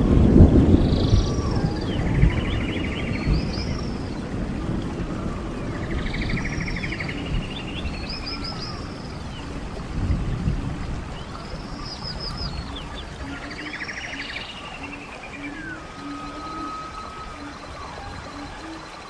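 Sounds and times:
songbird trilling: 11.2s - 19.0s.

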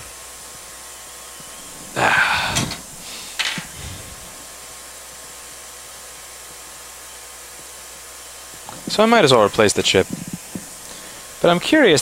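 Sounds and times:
steady airy hiss: 0.0s - 12.0s
loud rough noise: 1.7s - 4.4s.

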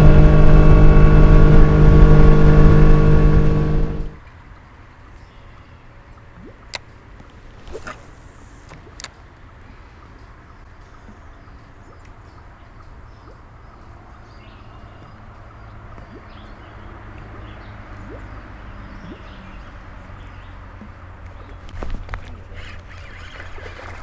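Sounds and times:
steady low hum: 0.0s - 4.2s.

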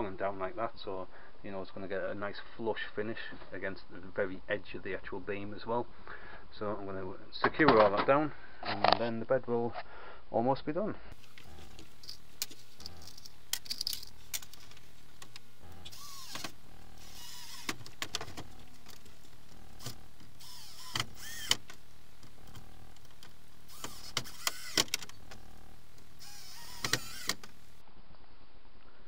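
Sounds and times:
cordless drill motor whining: 11.2s - 13.3s, 14.3s - 27.8s.

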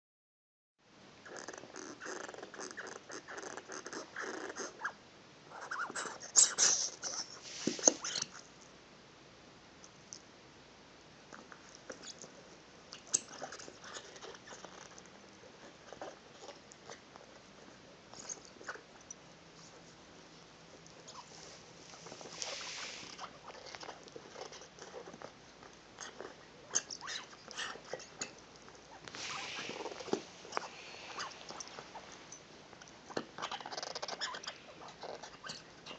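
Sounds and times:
short hiss: 6.4s - 8.0s, 22.2s - 23.2s, 29.1s - 32.3s.

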